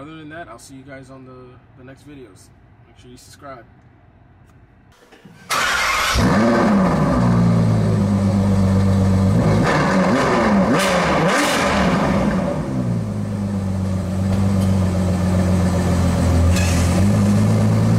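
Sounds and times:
car engine idling and revving: 5.7s - 17.9s.

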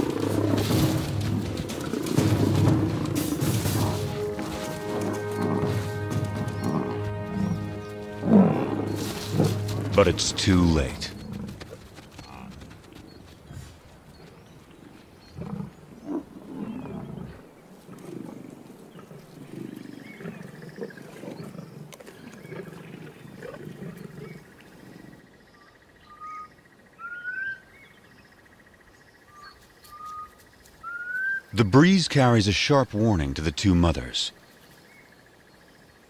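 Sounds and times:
lions growling: 0.0s - 13.7s, 14.7s - 25.2s.

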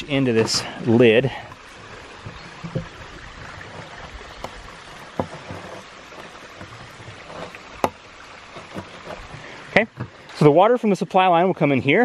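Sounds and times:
creek water running: 0.0s - 12.0s
plastic pipe knocks and creaks: 1.5s - 10.4s.

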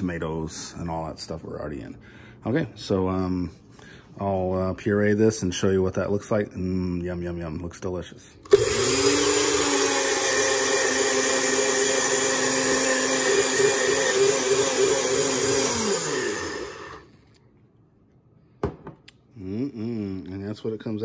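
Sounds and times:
blender motor running: 8.5s - 17.1s.

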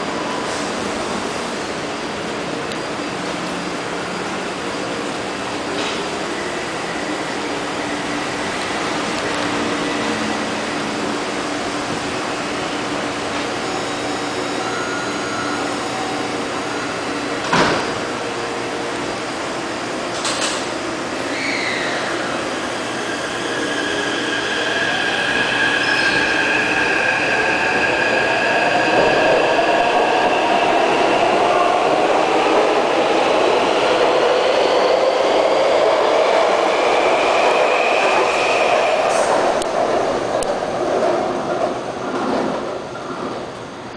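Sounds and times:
train doors shutting: 5.0s - 7.5s, 13.2s - 18.5s, 19.8s - 43.7s.

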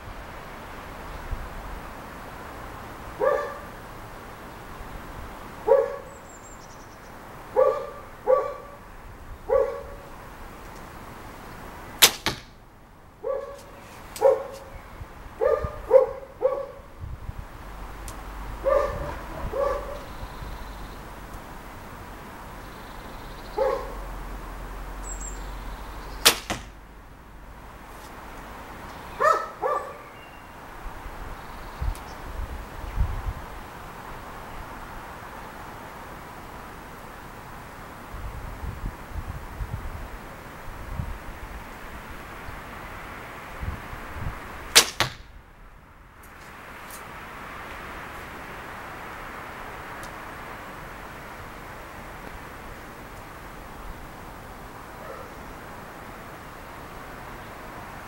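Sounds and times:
dog barking: 3.2s - 3.7s, 5.7s - 6.1s, 7.6s - 8.8s, 9.5s - 10.1s, 13.2s - 14.7s, 15.4s - 16.9s, 18.6s - 20.1s, 23.6s - 24.1s, 29.2s - 30.1s, 55.0s - 55.4s
bowstring snap: 12.0s - 12.5s, 26.2s - 26.7s, 44.8s - 45.3s
quieter crack: 12.0s - 12.6s, 26.2s - 26.8s, 44.7s - 45.3s.

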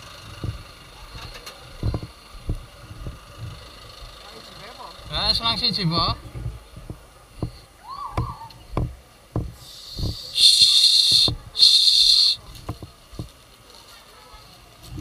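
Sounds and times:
footsteps on paving: 0.4s - 3.6s, 5.0s - 13.4s
loud hissing bursts: 9.4s - 12.8s.

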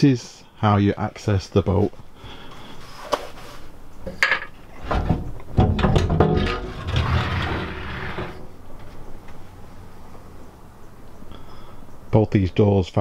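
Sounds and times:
hatch rumbling scraping slide: 5.9s - 8.6s.

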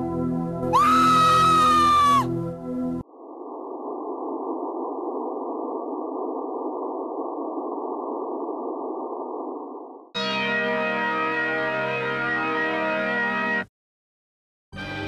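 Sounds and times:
muffled static hiss: 3.0s - 10.1s.

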